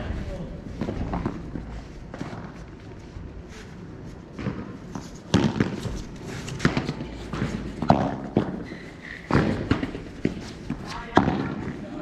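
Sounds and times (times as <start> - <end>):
padel ball hit by rackets: 4.4 - 5.9, 6.6 - 8.6
ball bouncing on court: 4.4 - 11.8.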